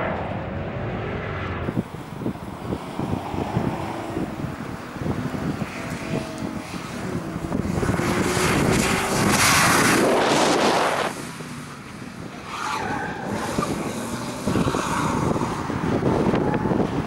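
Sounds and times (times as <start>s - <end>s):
car engine working hard: 0.0s - 17.0s.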